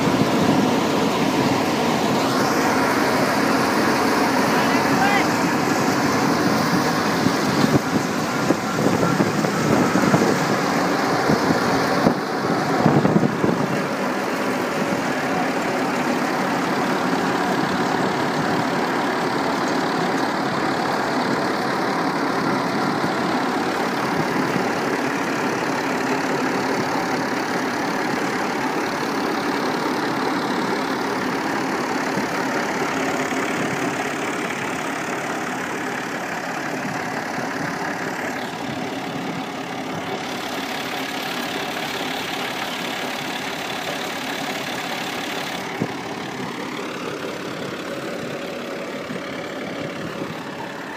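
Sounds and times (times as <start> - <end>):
thresher running: 0.0 - 50.9
tractor diesel engine: 0.0 - 50.9.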